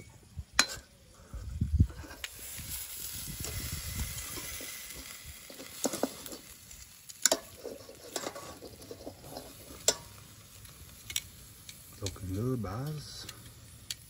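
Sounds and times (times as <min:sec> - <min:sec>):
steak sizzling on a grill: 0:01.8 - 0:14.0
metal tongs clicking on grate: 0:07.1 - 0:10.2, 0:13.2 - 0:14.0.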